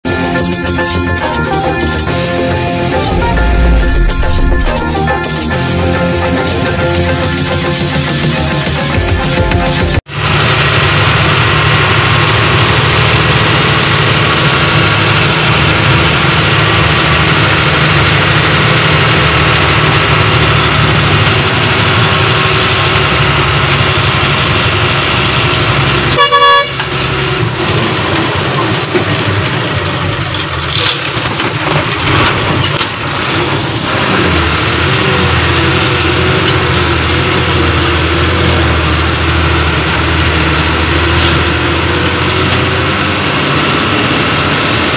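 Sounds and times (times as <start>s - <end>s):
car engine and road noise: 0.0s - 44.9s
car horn honking: 26.1s - 26.9s.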